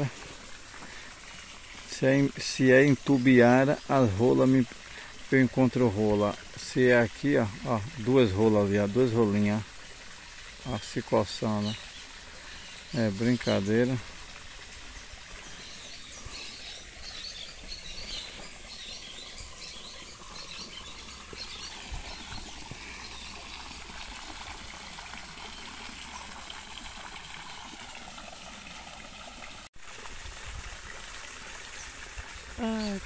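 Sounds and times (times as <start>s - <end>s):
water splashing into pond: 0.0s - 33.0s
birds chirping: 10.6s - 14.1s, 15.2s - 24.1s.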